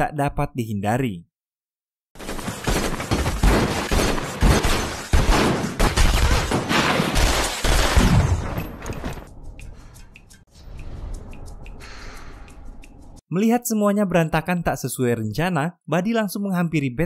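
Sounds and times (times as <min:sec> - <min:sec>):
rapid handgun fire: 0:02.2 - 0:08.2.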